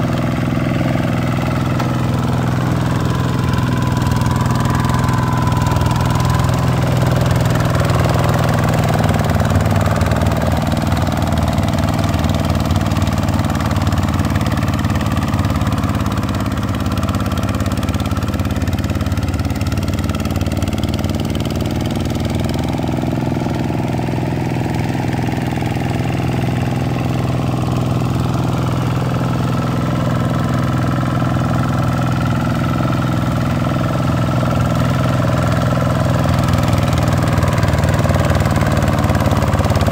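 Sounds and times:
diesel tractor engine running: 0:00.0 - 0:39.9.

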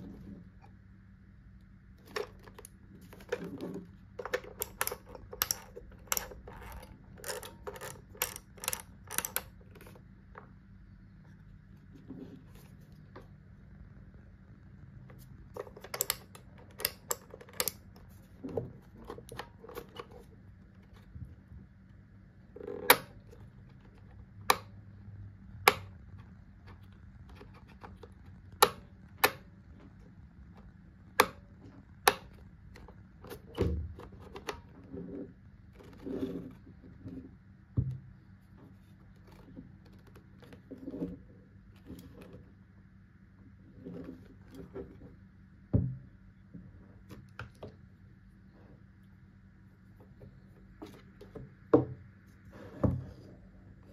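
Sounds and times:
soft rubbing and handling: 0:00.0 - 0:00.9, 0:09.8 - 0:14.1, 0:34.0 - 0:45.5, 0:46.4 - 0:53.9.

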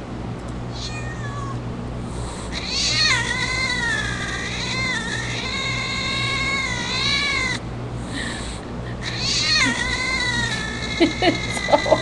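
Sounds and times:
cat yowling through speakers: 0:00.7 - 0:01.6, 0:02.5 - 0:07.6, 0:09.0 - 0:12.0.

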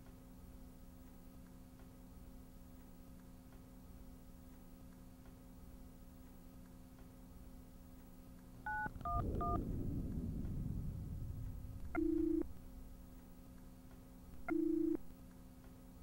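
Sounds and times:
keypad beeps: 0:08.7 - 0:09.6, 0:14.4 - 0:15.0
low rumbling noise: 0:08.7 - 0:13.6
telephone ringing tone: 0:12.0 - 0:12.5, 0:14.4 - 0:15.1.

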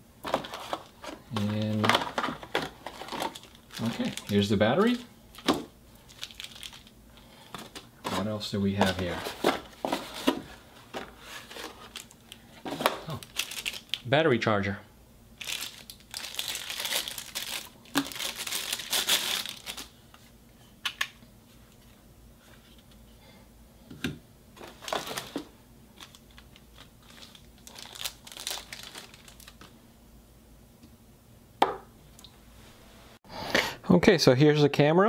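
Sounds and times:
plastic bag crinkling: 0:00.2 - 0:10.4, 0:11.2 - 0:14.1, 0:15.4 - 0:20.0, 0:24.6 - 0:29.7.

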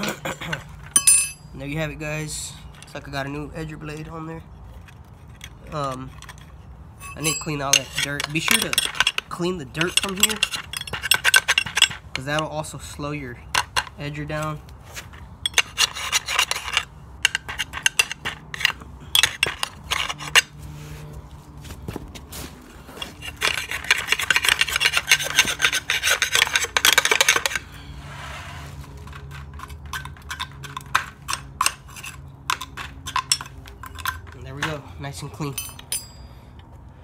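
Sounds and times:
scraping dirt off metal: 0:13.7 - 0:21.2, 0:22.2 - 0:34.4.

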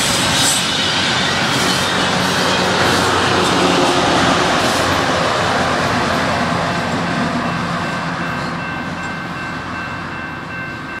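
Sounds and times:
wheels rolling on rail: 0:00.0 - 0:11.0.

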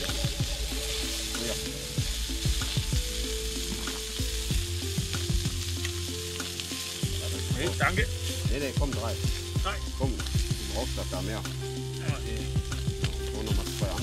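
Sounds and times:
food sizzling in a frying pan: 0:00.0 - 0:14.0.

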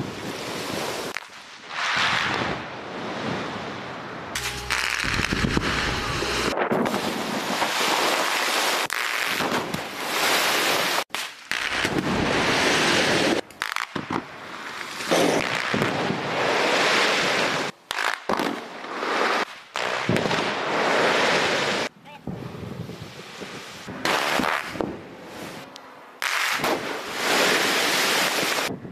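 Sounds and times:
wind noise on microphone: 0:02.0 - 0:08.2, 0:28.2 - 0:28.9
explosive blasts: 0:04.3 - 0:08.3.

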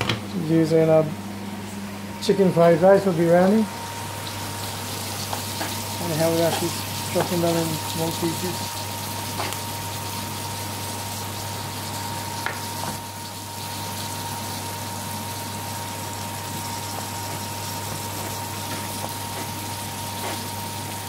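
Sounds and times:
kitchen hiss: 0:04.2 - 0:09.7.

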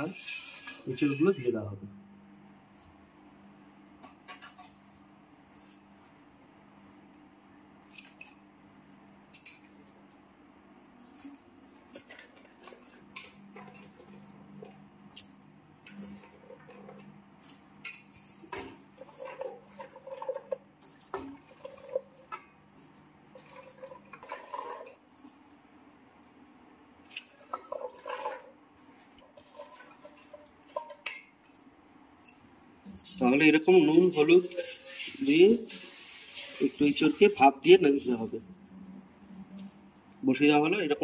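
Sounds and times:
pot and utensils clinking: 0:00.0 - 0:01.4, 0:23.4 - 0:25.0, 0:27.2 - 0:28.5, 0:29.1 - 0:31.3.

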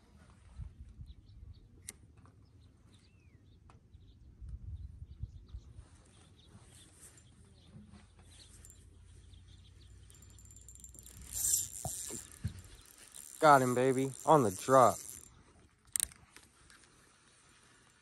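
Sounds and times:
wind rumble on microphone: 0:00.4 - 0:01.7, 0:04.2 - 0:06.0
faint bird chirp: 0:02.4 - 0:15.2.

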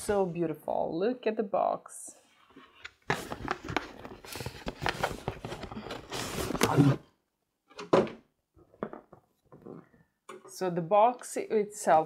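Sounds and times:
cardboard rustling and scraping: 0:02.4 - 0:07.0.

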